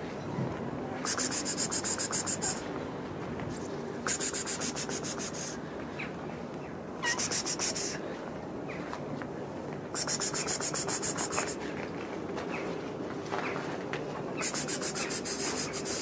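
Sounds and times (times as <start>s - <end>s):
rapid rhythmic scraping: 14.4s - 16.0s.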